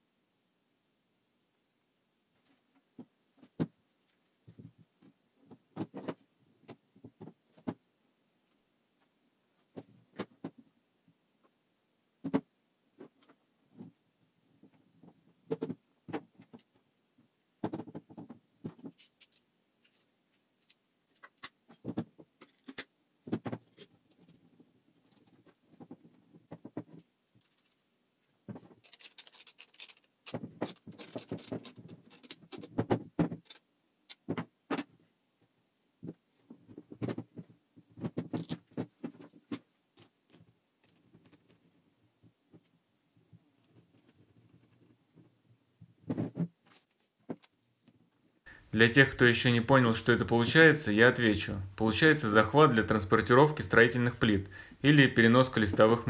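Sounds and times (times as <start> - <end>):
metal bolts and nuts clinking: 18.9 - 22.9, 28.7 - 32.8, 33.4 - 34.2.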